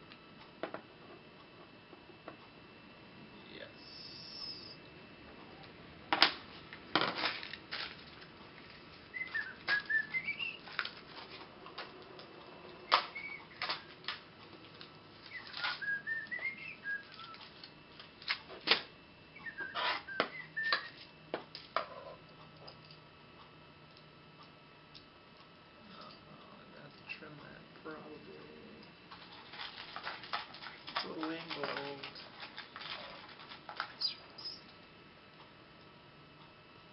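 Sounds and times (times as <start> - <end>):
whistled phrase: 9.2 - 10.6, 15.3 - 17.3.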